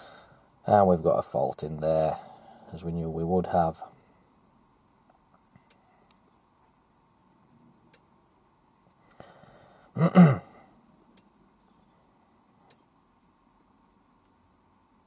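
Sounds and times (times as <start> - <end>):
faint clicks and ticks: 5.0 - 6.8, 7.9 - 8.1, 11.1 - 11.4, 12.6 - 12.9.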